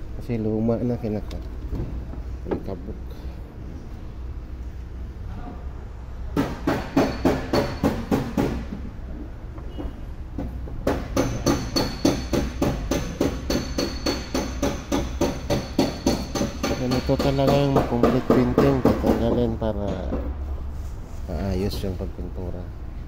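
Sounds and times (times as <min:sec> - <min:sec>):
hammering on metal: 0:06.4 - 0:08.8, 0:09.8 - 0:20.3.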